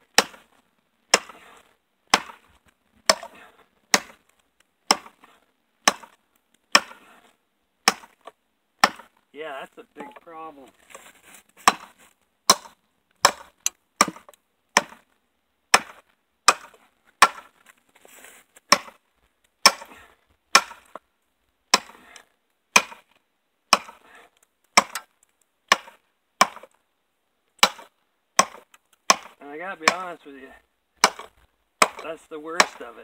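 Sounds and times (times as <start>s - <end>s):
blade chopping wooden board: 0.1s - 0.5s, 1.1s - 2.5s, 3.1s - 4.2s, 4.9s - 7.1s, 7.8s - 9.1s, 11.6s - 15.0s, 15.7s - 17.5s, 18.7s - 19.0s, 19.6s - 21.0s, 21.7s - 22.2s, 22.8s - 23.1s, 23.7s - 24.0s, 24.8s - 25.1s, 25.7s - 26.7s, 27.6s - 30.1s, 31.0s - 32.9s.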